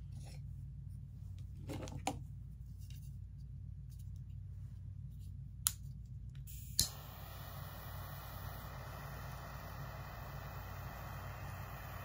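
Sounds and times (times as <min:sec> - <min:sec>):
low steady hum: 0:00.0 - 0:12.0
torch lighter igniting and hissing: 0:06.5 - 0:12.0.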